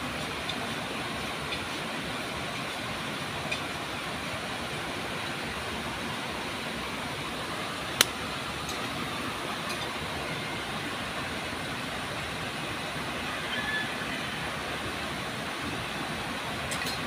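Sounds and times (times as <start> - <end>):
river water rushing over weir: 0.0 - 17.0.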